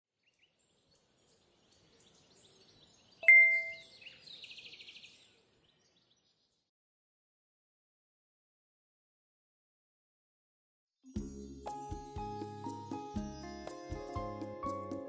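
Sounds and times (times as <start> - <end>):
bright bell ding: 3.2 - 3.8
twinkling trill: 3.2 - 3.8.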